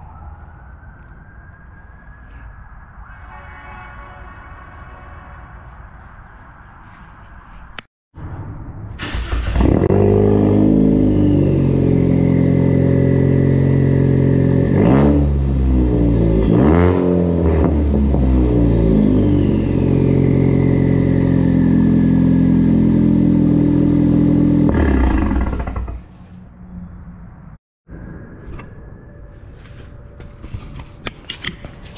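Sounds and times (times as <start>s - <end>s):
car engine revving: 9.0s - 26.2s.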